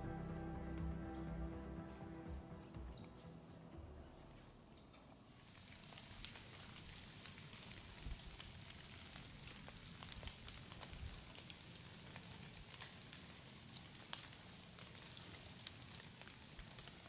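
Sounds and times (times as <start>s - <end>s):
soft low bumps: 0.0s - 4.7s
soft outdoor hiss: 0.0s - 13.7s
faint crackling and ticking: 0.0s - 17.0s.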